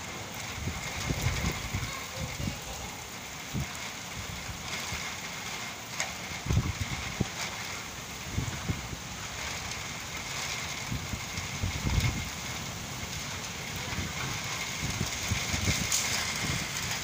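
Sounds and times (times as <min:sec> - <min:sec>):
heavy rain falling: 0:00.0 - 0:17.0
wind buffeting the microphone: 0:00.2 - 0:17.0.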